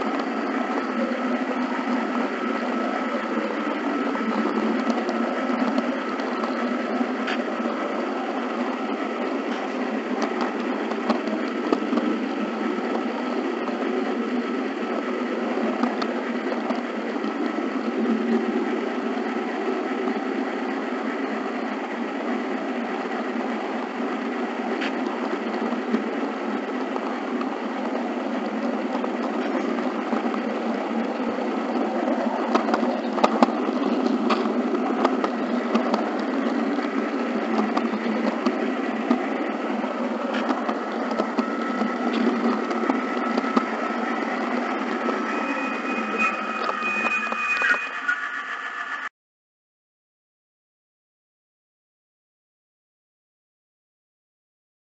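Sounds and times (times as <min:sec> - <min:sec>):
faint steady whine: 0:00.0 - 0:49.1
model train rumbling and rattling: 0:00.0 - 0:49.1.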